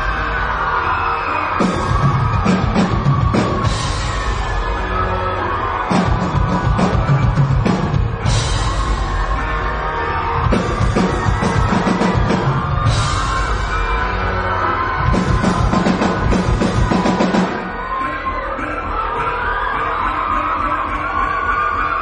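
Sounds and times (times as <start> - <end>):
rock drum solo: 1.5 - 17.8.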